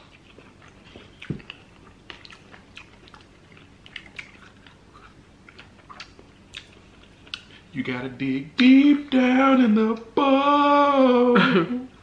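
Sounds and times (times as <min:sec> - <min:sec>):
chewing mouth sounds: 0:00.0 - 0:07.6.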